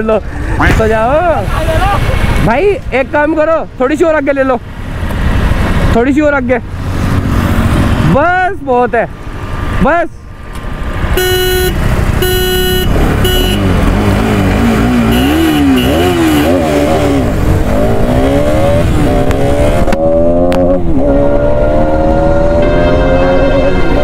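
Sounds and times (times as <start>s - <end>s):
motorcycle engine revving: 6.7s - 8.2s, 10.7s - 24.0s
horn toots: 11.1s - 17.2s, 21.5s - 24.0s.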